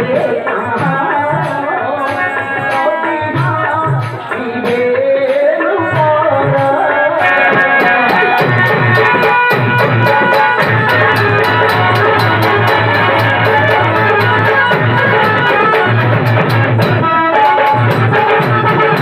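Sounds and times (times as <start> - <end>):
hand drum beat: 0.0 - 19.0
sharp rhythmic strikes: 0.0 - 19.0
wavering melody: 7.2 - 19.0.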